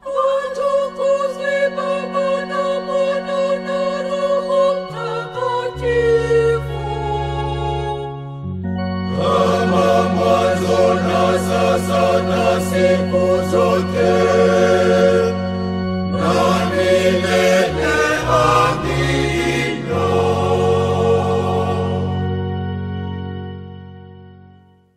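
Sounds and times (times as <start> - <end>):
choir singing a hymn: 0.0 - 8.2, 9.0 - 23.2
sustained instrumental chords: 0.0 - 24.9.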